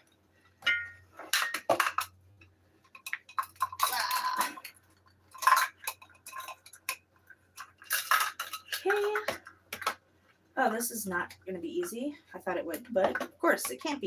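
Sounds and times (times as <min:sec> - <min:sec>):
plastic measuring cups clacking: 0:00.6 - 0:10.0, 0:12.6 - 0:14.0.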